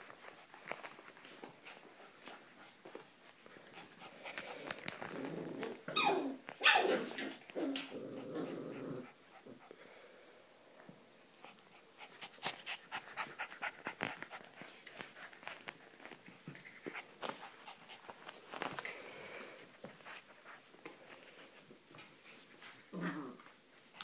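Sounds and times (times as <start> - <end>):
light clicks and scuffles: 0.0 - 3.6, 13.8 - 22.8
dogs play-growling: 3.4 - 9.8, 21.1 - 23.6
dog yelps: 5.9 - 7.1.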